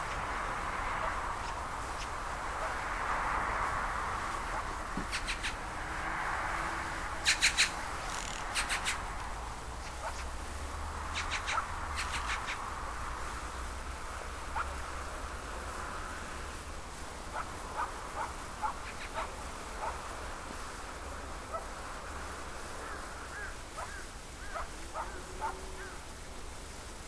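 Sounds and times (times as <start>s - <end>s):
short chirping calls: 7.2s - 9.1s, 11.1s - 12.6s.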